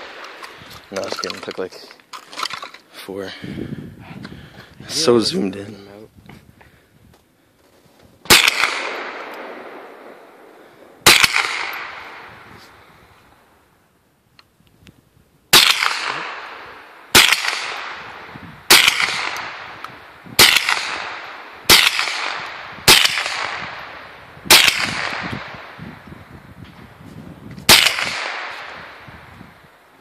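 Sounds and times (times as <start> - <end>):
rifle shots echoing: 0.0 - 1.1, 8.3 - 12.5, 15.5 - 25.8, 27.7 - 29.1.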